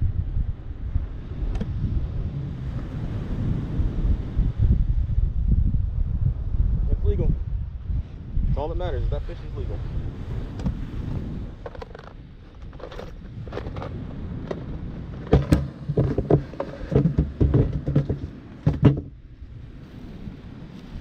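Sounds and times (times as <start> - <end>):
wind buffeting microphone: 0.0 - 21.0
surf washing: 1.1 - 4.7, 8.7 - 21.0
camera handling knocks and scrapes: 11.6 - 19.1.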